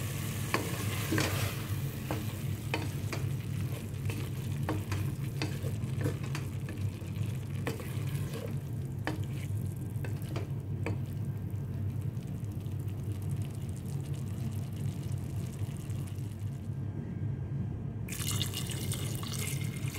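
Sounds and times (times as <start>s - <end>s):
meat sizzling in a pot: 0.0s - 10.5s
steady low hum: 0.0s - 18.1s
spatula scraping a metal pot: 7.6s - 10.3s.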